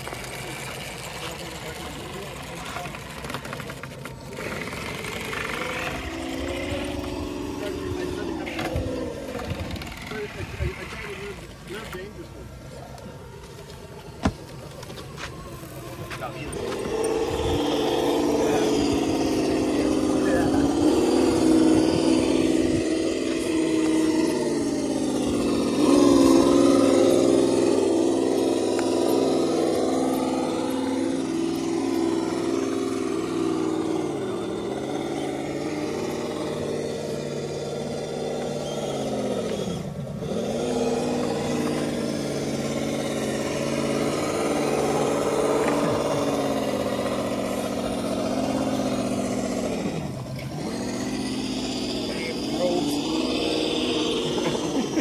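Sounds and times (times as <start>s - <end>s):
electric motors whining: 0.0s - 55.0s.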